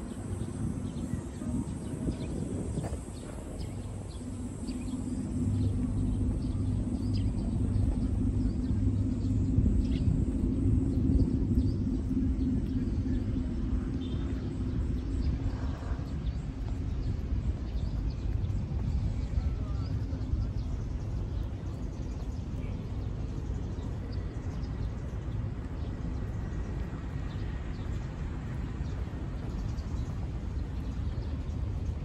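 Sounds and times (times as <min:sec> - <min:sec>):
low mechanical drone: 0:00.0 - 0:32.0.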